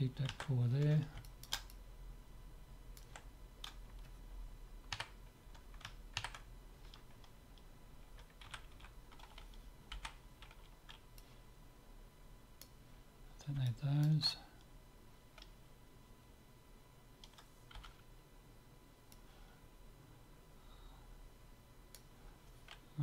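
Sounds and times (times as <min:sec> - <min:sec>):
low steady hum: 0:00.0 - 0:23.0
keyboard keys clicking: 0:04.9 - 0:07.3, 0:08.2 - 0:11.0, 0:17.2 - 0:18.0.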